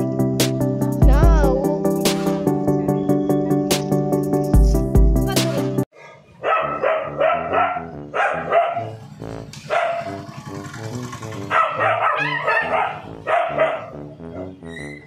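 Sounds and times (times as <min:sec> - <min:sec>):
dogs barking: 0:06.0 - 0:15.0.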